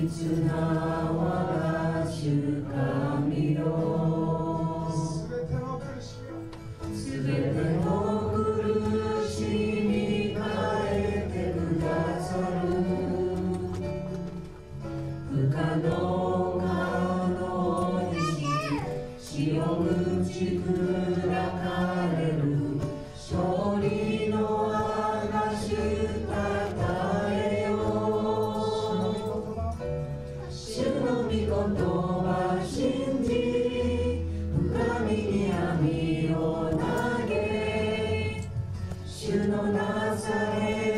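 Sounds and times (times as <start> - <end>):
several voices singing: 0.0 - 40.9
sustained instrumental accompaniment: 0.0 - 40.9.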